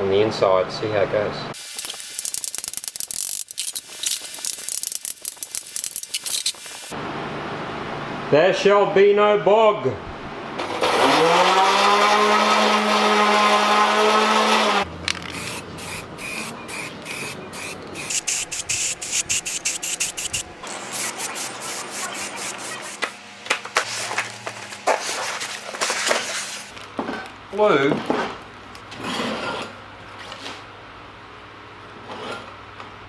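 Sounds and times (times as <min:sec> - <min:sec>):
aerosol spray can hissing: 0:01.6 - 0:06.9, 0:15.3 - 0:23.1
small electric motor running: 0:11.2 - 0:23.2.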